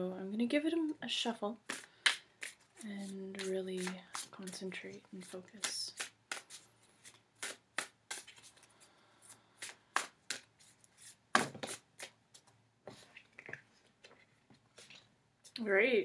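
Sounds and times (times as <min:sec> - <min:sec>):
cards being shuffled: 0:01.7 - 0:14.2.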